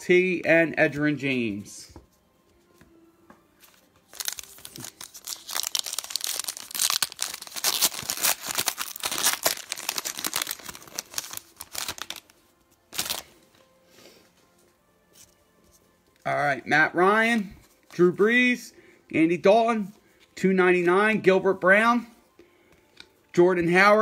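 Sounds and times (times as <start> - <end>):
wrapper tearing and crinkling: 4.1 - 13.3.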